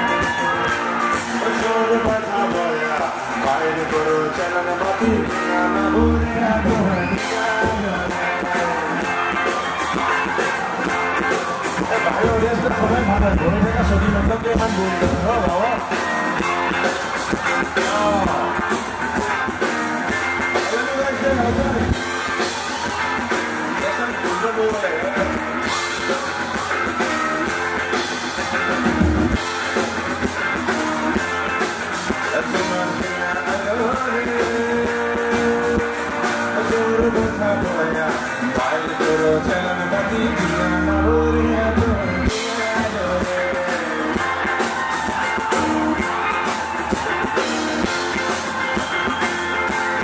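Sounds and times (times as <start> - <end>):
man singing into a microphone: 0.0 - 9.3, 32.2 - 44.2
drums: 0.0 - 50.0
guitar: 0.0 - 50.0.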